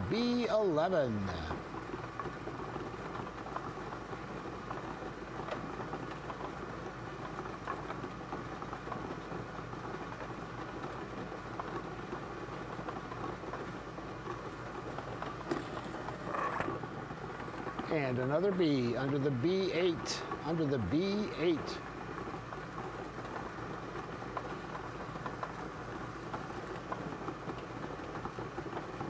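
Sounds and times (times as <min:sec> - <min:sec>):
ball blower machine running: 0:00.0 - 0:09.2, 0:09.9 - 0:29.0
balls clicking and tumbling: 0:00.0 - 0:29.0.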